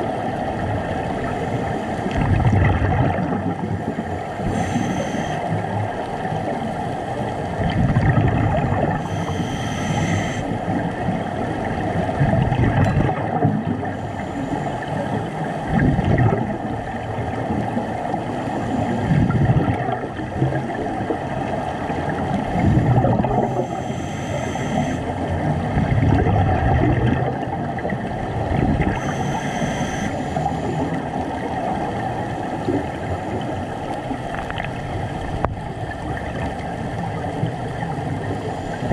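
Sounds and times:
underwater bubbles from exhaling: 0.0s - 24.0s, 24.8s - 38.9s
regulator inhalation hiss: 4.5s - 5.5s, 9.0s - 10.6s, 23.5s - 25.1s, 29.0s - 30.8s.

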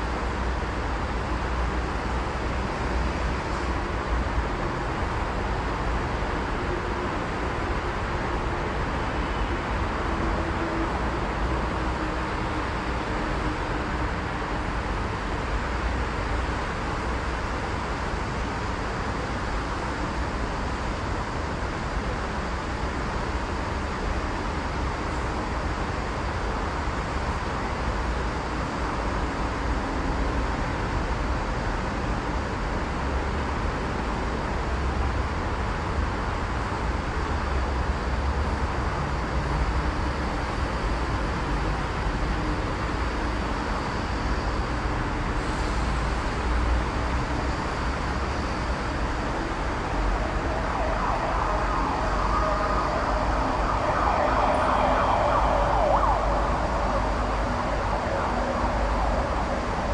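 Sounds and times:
city road traffic hum: 0.0s - 59.9s.

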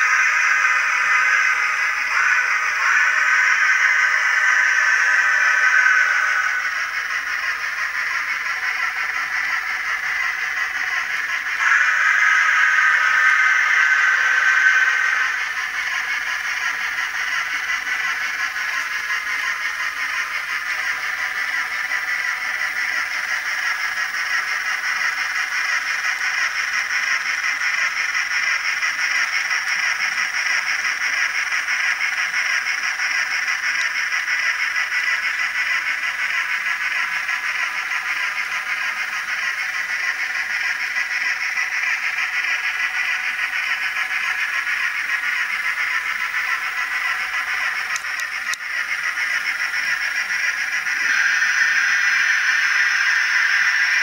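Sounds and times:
model train steam chuffing: 0.0s - 54.0s.

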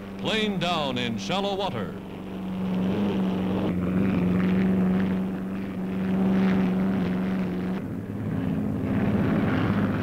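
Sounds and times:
engine droning: 0.0s - 10.0s.

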